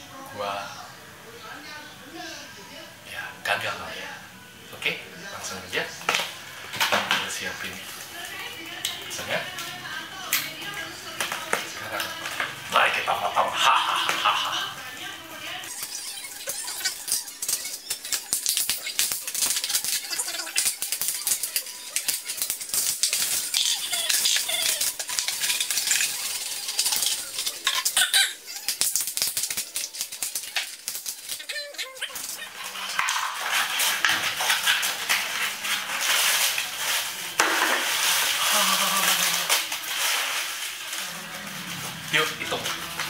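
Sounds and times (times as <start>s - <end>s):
plastic bottle crinkling: 10.8s - 43.0s
paper notes rustling: 28.7s - 43.0s.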